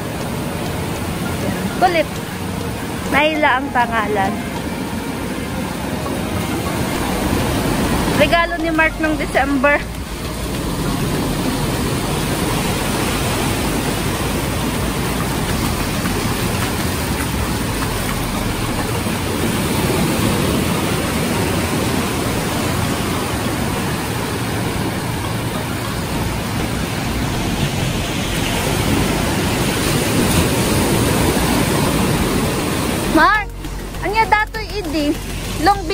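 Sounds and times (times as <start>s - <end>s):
small sea waves breaking: 9.3s - 33.9s.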